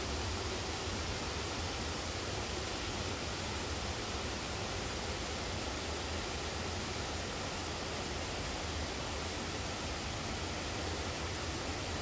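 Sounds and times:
waterfall and stream rushing: 0:00.0 - 0:12.0.

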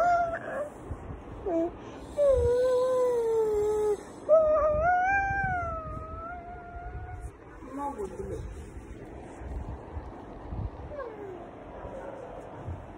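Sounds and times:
child making drawn-out tones: 0:00.0 - 0:00.7.

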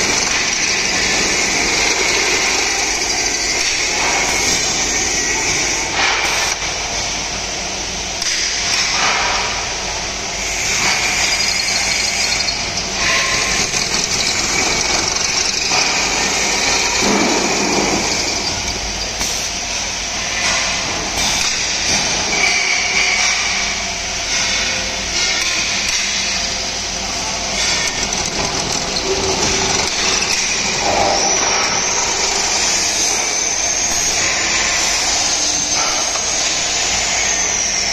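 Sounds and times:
high-pitched drill squeals: 0:00.0 - 0:05.8, 0:10.5 - 0:19.4, 0:27.5 - 0:37.9
drilling machine whirring: 0:00.0 - 0:07.2, 0:10.3 - 0:37.9.

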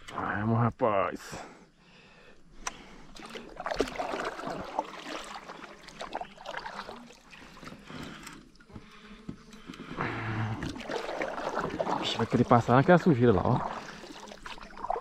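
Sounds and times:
water splashing and swirling: 0:02.8 - 0:08.9, 0:09.6 - 0:15.0.

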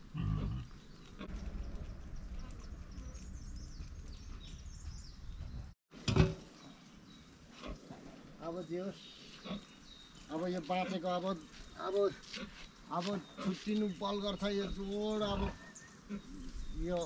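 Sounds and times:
farm animal grunting: 0:00.0 - 0:01.4, 0:14.5 - 0:16.8
low rumble: 0:01.0 - 0:05.8.

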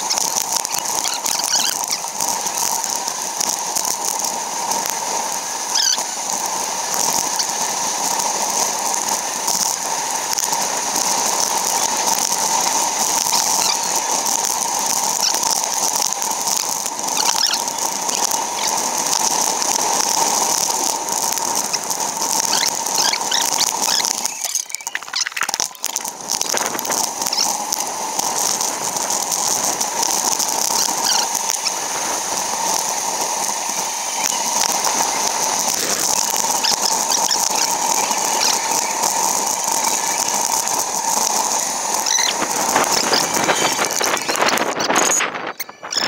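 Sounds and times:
sped-up wind and road rush: 0:00.0 - 0:46.0
quick squeaky chirps: 0:01.0 - 0:02.0, 0:05.8 - 0:06.0, 0:22.5 - 0:25.9, 0:27.2 - 0:27.6, 0:31.0 - 0:31.3, 0:42.0 - 0:46.0.

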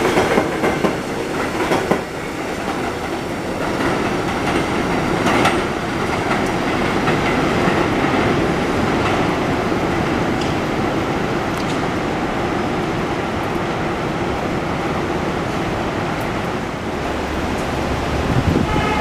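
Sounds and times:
train rumbling on elevated track: 0:00.0 - 0:19.0.

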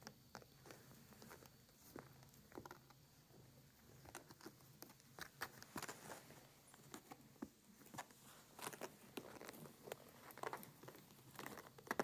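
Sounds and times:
kittens wrestling rustles: 0:03.9 - 0:12.0.

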